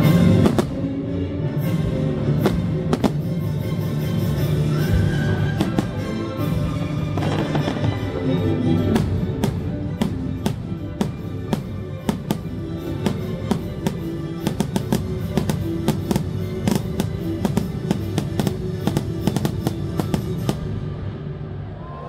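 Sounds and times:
show music with drums: 0.0 - 0.9, 1.6 - 20.8
firework bangs: 2.4 - 3.3, 7.2 - 8.3, 8.9 - 20.8.

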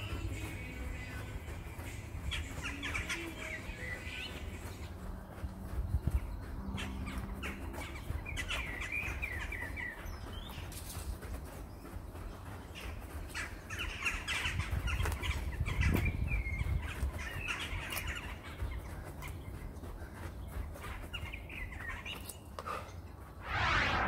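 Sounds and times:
small birds warbling and chirping: 0.0 - 23.3
footsteps on grass: 0.0 - 23.4
low rumble: 23.4 - 24.0.

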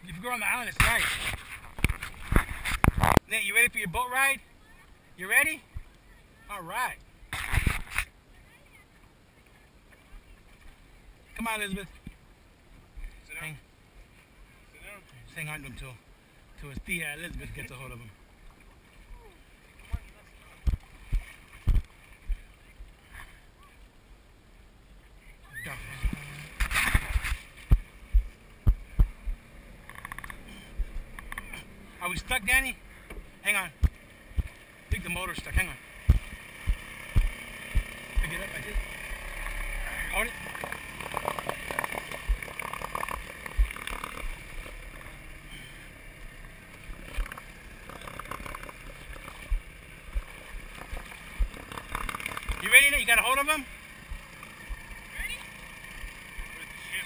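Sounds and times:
scraping or rustling: 0.8 - 3.2, 7.4 - 8.1, 25.7 - 27.8.

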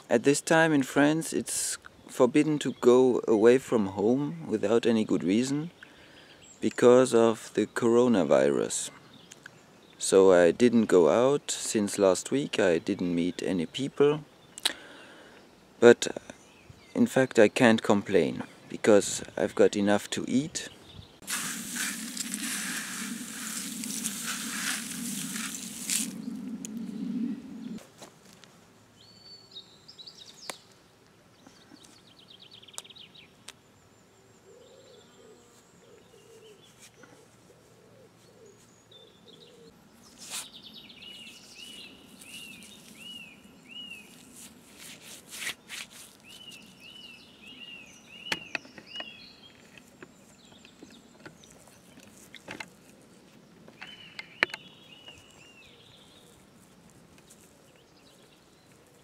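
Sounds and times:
bird chirping: 16.3 - 27.8, 31.4 - 44.5, 45.6 - 52.5, 53.6 - 59.0.

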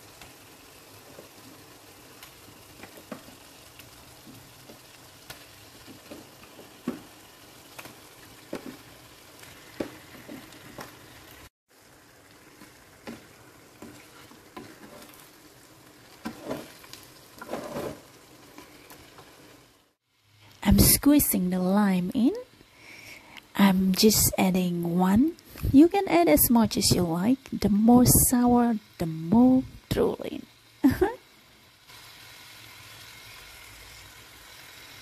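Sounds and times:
paste sizzling in a wok: 0.0 - 35.0
wooden spatula scraping: 12.6 - 15.4, 16.1 - 19.3.

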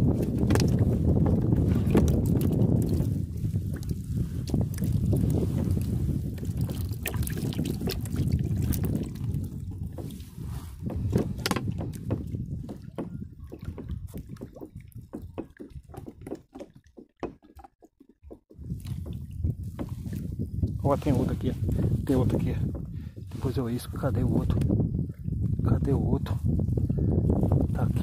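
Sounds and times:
water sloshing in bucket: 0.0 - 25.3
water dripping: 0.3 - 10.1, 11.4 - 20.2.

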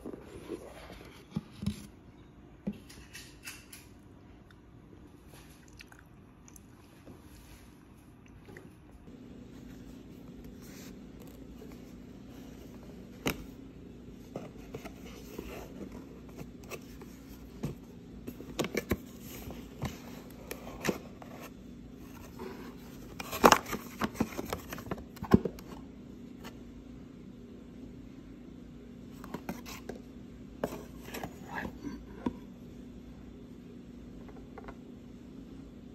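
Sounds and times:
steady low hum: 0.0 - 35.9.

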